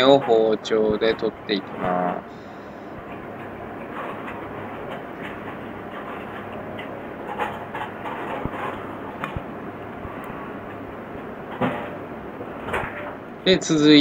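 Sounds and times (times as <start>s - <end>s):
steady background hiss: 0.0s - 14.0s.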